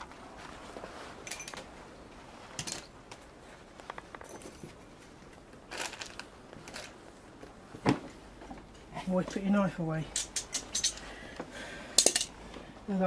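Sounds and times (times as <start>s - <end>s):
metal tools clinking: 1.2s - 1.7s, 2.5s - 3.0s, 4.2s - 5.0s, 10.1s - 11.1s, 12.0s - 12.4s.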